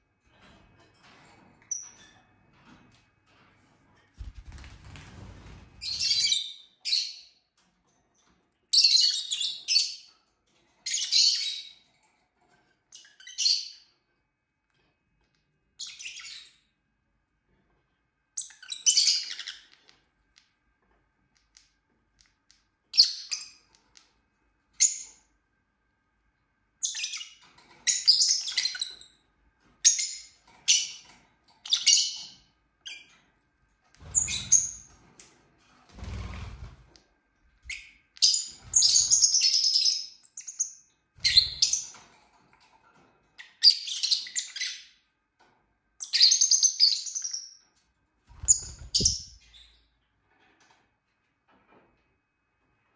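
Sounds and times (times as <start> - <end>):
lovebirds chirping: 48.3 - 49.8.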